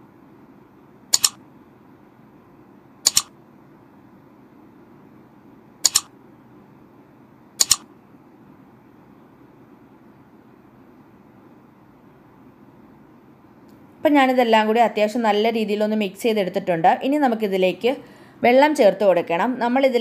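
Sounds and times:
faint steady hum: 0:00.0 - 0:20.0
mouse double-clicks: 0:01.1 - 0:01.4, 0:03.0 - 0:03.3, 0:05.8 - 0:06.1, 0:07.6 - 0:07.9.

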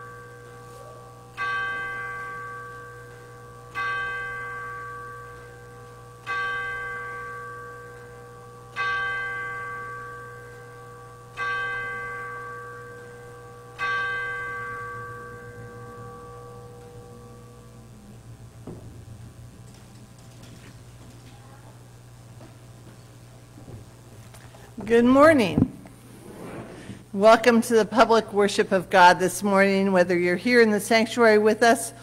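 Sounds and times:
church bell tolling: 0:00.0 - 0:19.7.

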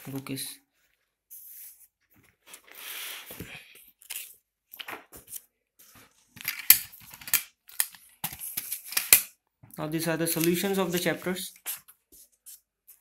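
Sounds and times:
book pages rustling: 0:10.2 - 0:13.0.

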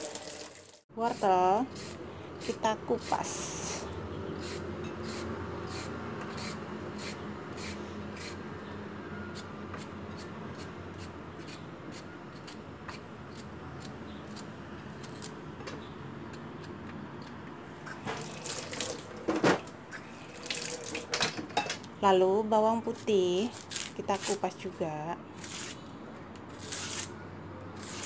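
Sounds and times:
knife scraping carrot skin: 0:01.1 - 0:08.4, 0:09.3 - 0:15.4, 0:25.4 - 0:25.8, 0:26.5 - 0:27.1, 0:27.8 - 0:28.0.

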